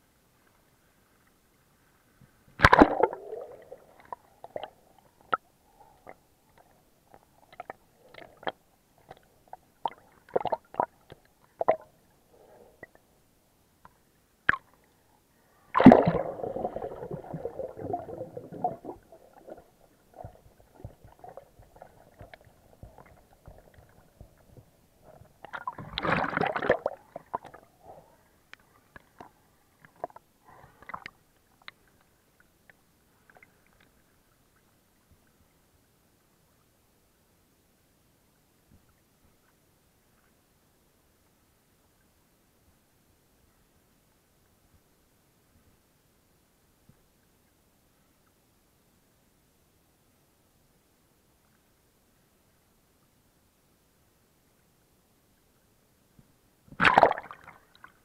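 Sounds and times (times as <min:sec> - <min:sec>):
underwater sloshing and gurgling: 0:00.4 - 0:36.3
rushes of water: 0:02.6 - 0:06.2, 0:15.5 - 0:28.1, 0:56.7 - 0:58.0.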